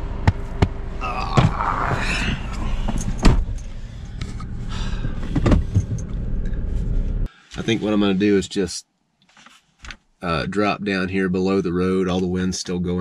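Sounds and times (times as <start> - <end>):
steady low rumble: 0.0 - 8.7
knocks and bumps: 0.2 - 6.8
car door shutting: 2.3 - 6.9.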